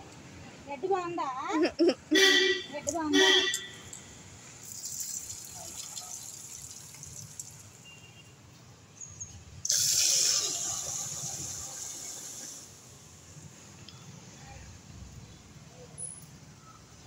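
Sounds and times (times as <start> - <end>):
tap water running into metal pot: 4.6 - 7.8.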